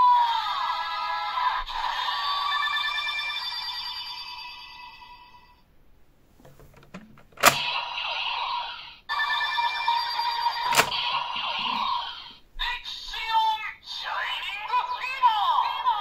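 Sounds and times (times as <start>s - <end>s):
sharp plastic clicks: 6.6s - 7.7s
toy belt electronic sound effects: 9.4s - 12.4s.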